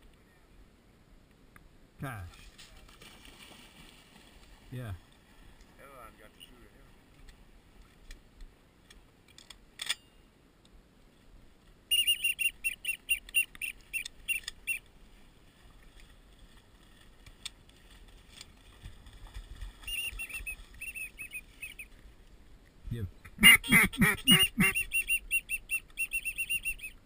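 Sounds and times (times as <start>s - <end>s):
duck whistle call: 11.9s - 14.8s, 19.9s - 21.8s, 23.4s - 27.0s.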